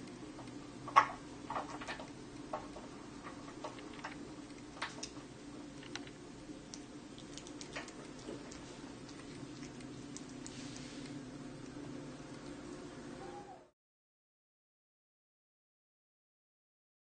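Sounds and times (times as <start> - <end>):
small clicks and taps: 0.0 - 10.6
room hum: 0.0 - 13.8.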